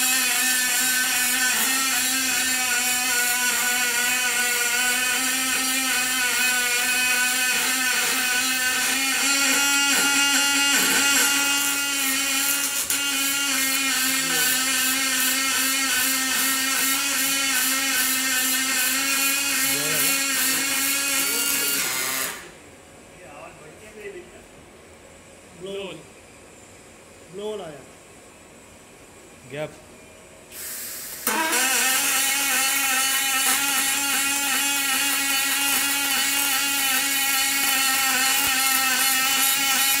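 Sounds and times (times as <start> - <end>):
welding arc buzzing: 0.0 - 22.6, 30.5 - 40.0.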